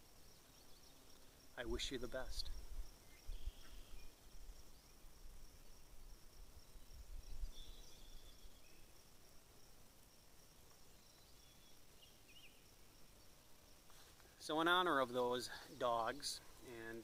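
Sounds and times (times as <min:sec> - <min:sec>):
high-pitched insect trill: 0:00.0 - 0:17.0
bird chirps: 0:00.2 - 0:01.4, 0:03.0 - 0:05.1, 0:05.8 - 0:09.0, 0:10.8 - 0:13.6
wind rumble on microphone: 0:02.4 - 0:04.1, 0:06.7 - 0:08.3.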